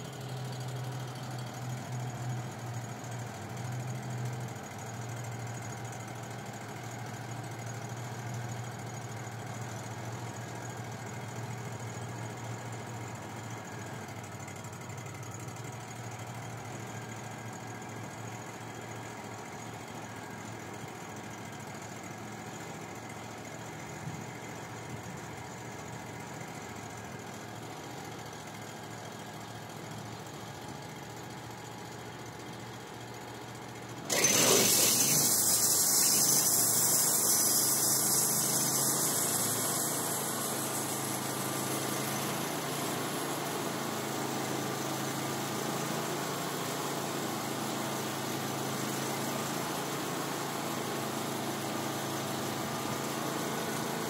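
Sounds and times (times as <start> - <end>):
sawmill engine running: 33.8 - 43.4
loud rushing hiss: 34.1 - 41.0.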